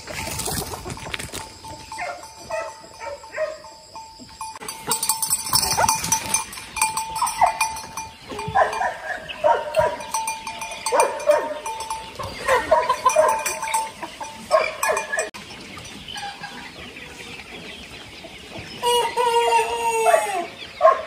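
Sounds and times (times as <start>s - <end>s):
chickens clucking: 0.0s - 21.0s
rooster crowing: 18.8s - 20.5s.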